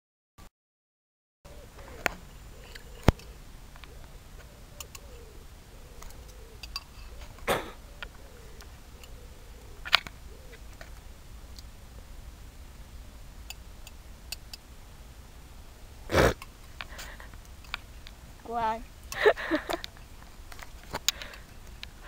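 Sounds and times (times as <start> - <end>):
steady low hum: 1.5 - 22.0.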